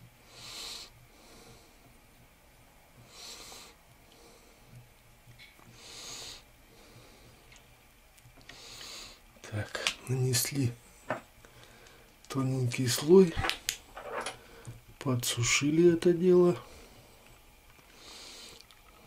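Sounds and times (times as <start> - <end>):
person breathing: 8.5 - 9.2, 11.0 - 12.2, 14.3 - 14.8, 16.6 - 17.3, 17.9 - 18.6.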